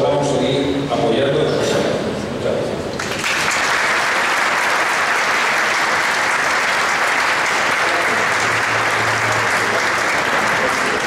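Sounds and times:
crowd applauding: 0:03.0 - 0:11.0.

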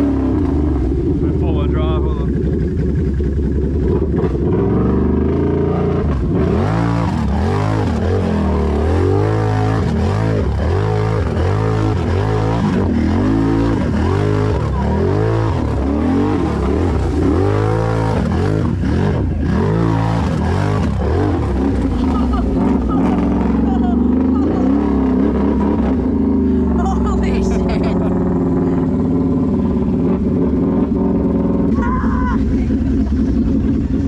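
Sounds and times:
engine revving: 0:00.0 - 0:34.0.

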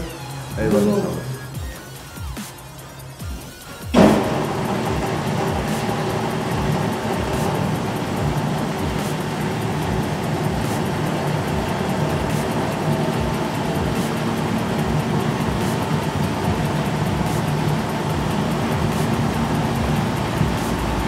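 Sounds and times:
car lift motor humming: 0:02.6 - 0:21.0.

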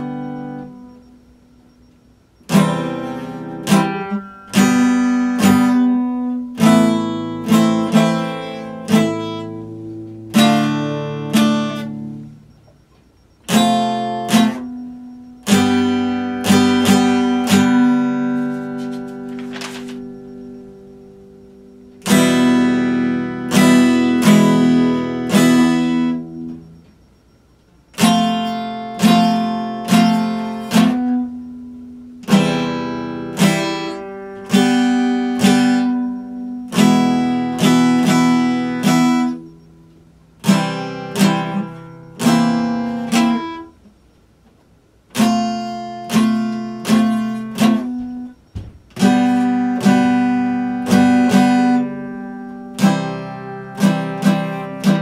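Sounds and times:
acoustic guitar chords: 0:00.0 - 0:55.0.

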